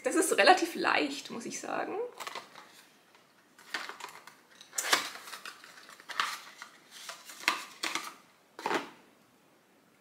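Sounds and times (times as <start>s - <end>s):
paper and card rustling: 2.2s - 8.9s.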